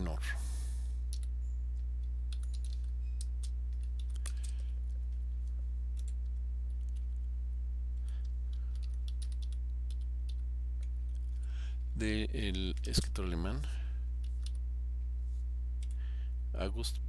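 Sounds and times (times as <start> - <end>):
low electrical hum: 0.0 - 17.0
computer keyboard typing: 1.0 - 7.3, 8.0 - 11.4, 14.2 - 14.6.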